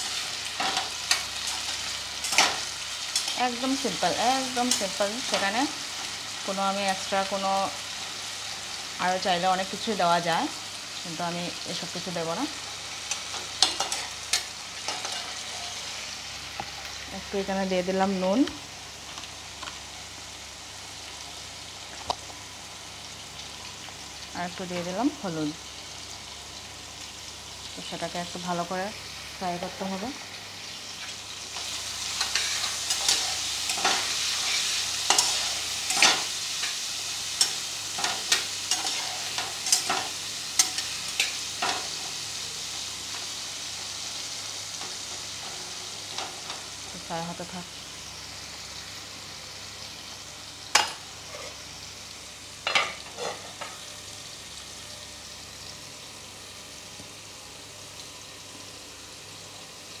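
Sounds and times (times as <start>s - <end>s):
potatoes sizzling in oil: 0.0s - 60.0s
spatula scraping pan: 31.6s - 36.3s, 52.7s - 53.7s.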